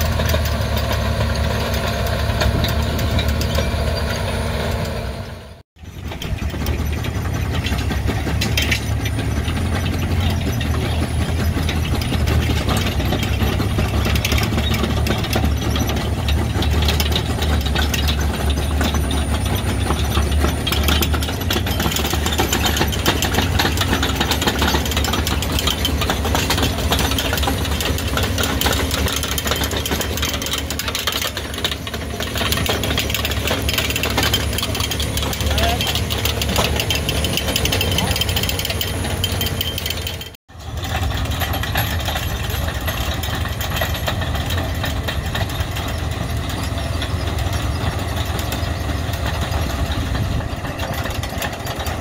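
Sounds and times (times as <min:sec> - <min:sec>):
chain conveyors rattling: 0:00.0 - 0:52.0
harvester engine droning: 0:00.0 - 0:52.0.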